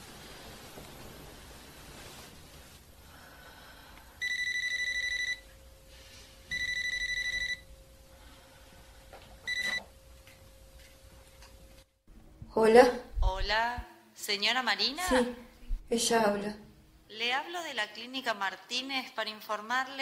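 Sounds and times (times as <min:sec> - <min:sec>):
telephone electronic ringing: 0:04.2 - 0:05.5, 0:06.5 - 0:07.6, 0:09.5 - 0:09.8.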